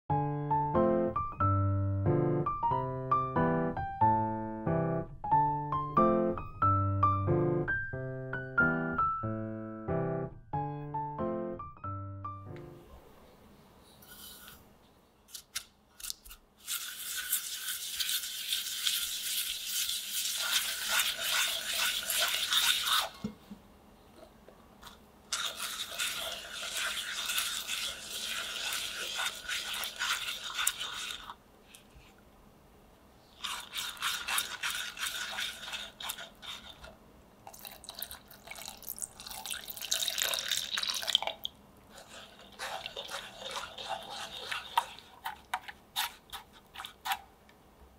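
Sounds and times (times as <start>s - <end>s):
whisk stirring in saucepan: 16.6s - 23.3s, 25.3s - 31.4s, 33.4s - 37.0s, 41.9s - 47.3s.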